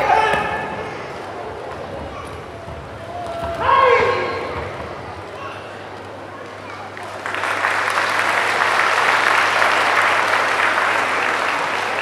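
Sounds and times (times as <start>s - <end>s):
audience applauding: 7.0s - 12.0s.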